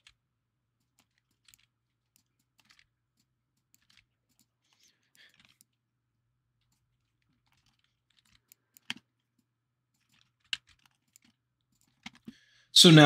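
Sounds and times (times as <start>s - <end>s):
keyboard and mouse clicks: 0.0s - 0.2s, 0.8s - 5.8s, 6.6s - 12.4s.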